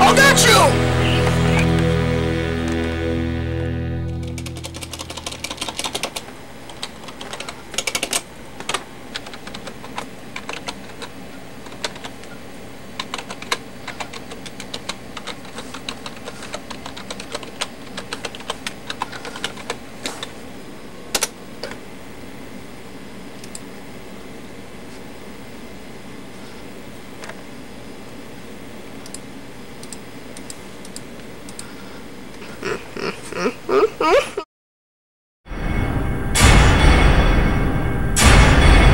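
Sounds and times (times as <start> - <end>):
computer keyboard typing: 4.2 - 12.4, 13.0 - 20.2.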